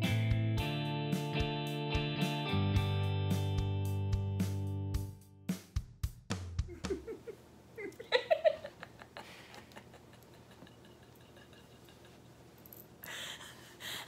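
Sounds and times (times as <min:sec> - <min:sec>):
person laughing: 0:06.7 - 0:12.4.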